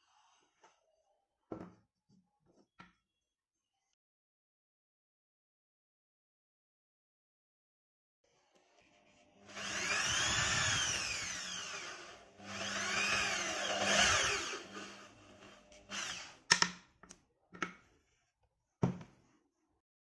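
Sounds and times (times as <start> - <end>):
electric drill boring wood: 9.4 - 16.7.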